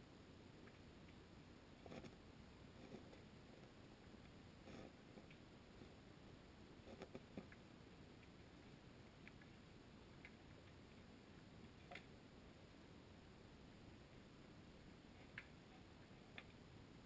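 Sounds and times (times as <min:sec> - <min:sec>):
faint clicks: 0:10.2 - 0:10.8.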